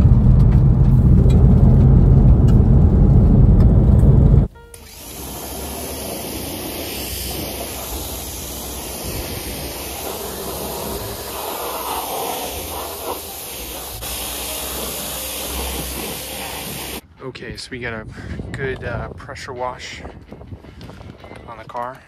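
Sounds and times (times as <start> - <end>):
low hum: 0.0 - 17.0
pressure washer water jet hissing: 4.8 - 17.0.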